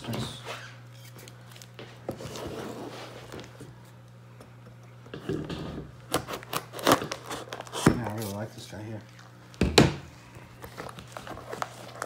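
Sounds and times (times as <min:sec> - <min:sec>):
steady low hum: 0:00.0 - 0:12.0
blade slitting packing tape: 0:06.1 - 0:08.3.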